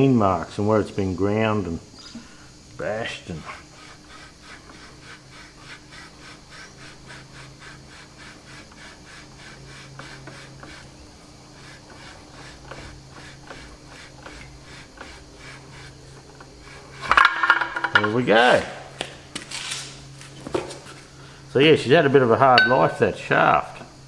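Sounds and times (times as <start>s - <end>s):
faint steady hum: 0.0s - 24.0s
metal-on-metal rasping: 3.2s - 18.2s, 22.5s - 23.1s.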